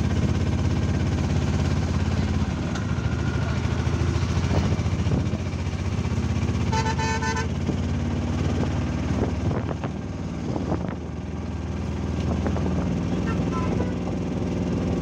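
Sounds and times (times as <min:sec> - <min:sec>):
auto-rickshaw engine rumbling: 0:00.0 - 0:15.0
street traffic: 0:00.0 - 0:15.0
vehicle horn: 0:06.6 - 0:07.6, 0:13.1 - 0:14.2.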